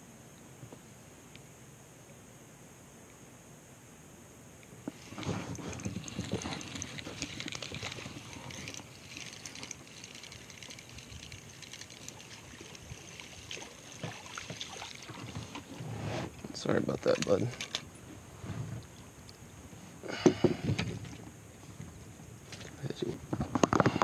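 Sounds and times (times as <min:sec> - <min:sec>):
fishing rod and line clicking: 0:04.9 - 0:15.7
water splashing against kayak: 0:04.9 - 0:17.9.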